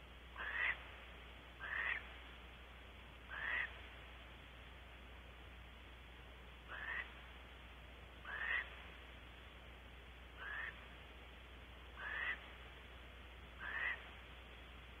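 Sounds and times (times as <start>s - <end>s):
animal rasping calls: 0.4s - 0.8s, 1.6s - 2.0s, 3.3s - 3.7s, 6.7s - 7.1s, 8.2s - 8.7s, 10.4s - 10.8s, 12.0s - 12.4s, 13.6s - 14.0s.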